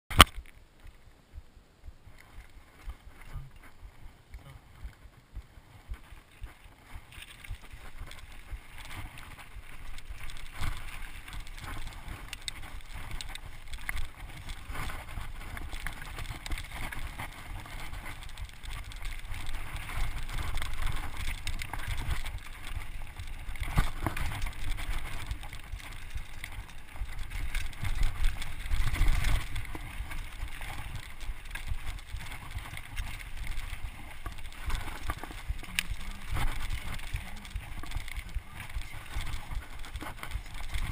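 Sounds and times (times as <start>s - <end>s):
wind buffeting microphone: 1.3s - 40.9s
tyres crunching on gravel: 2.2s - 40.9s
bike knocking and rattling: 4.4s - 40.9s.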